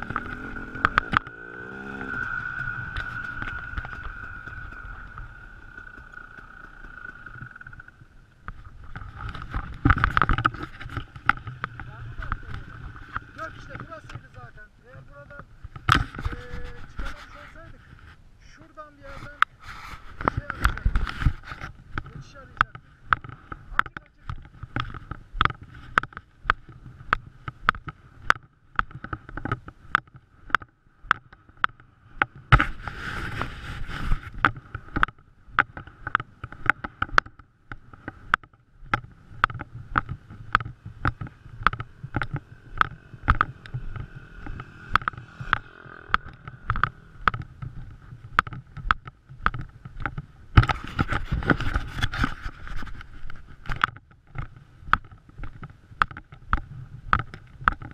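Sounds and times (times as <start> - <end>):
rushes of noise: 0.0 - 26.2, 31.8 - 38.3, 38.9 - 48.8
bike rattling over bumps: 0.0 - 57.9
dirt bike engine at low speed: 0.0 - 57.9.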